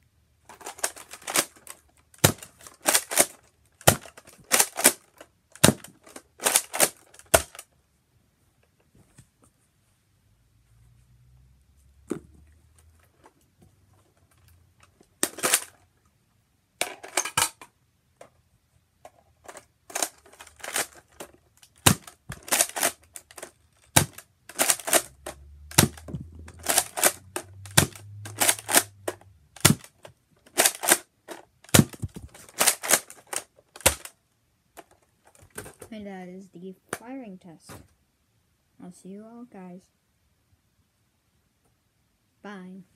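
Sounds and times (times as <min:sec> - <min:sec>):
toy dart blaster clacking and firing: 0:00.8 - 0:01.5, 0:02.2 - 0:07.6, 0:21.8 - 0:34.1.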